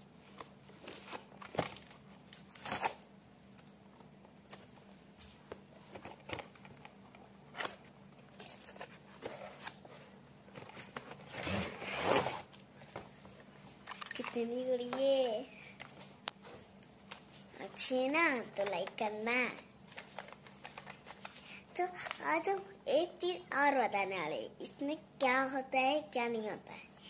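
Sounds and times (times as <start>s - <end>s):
cardboard packaging rustling: 0.2s - 3.0s, 5.2s - 14.6s.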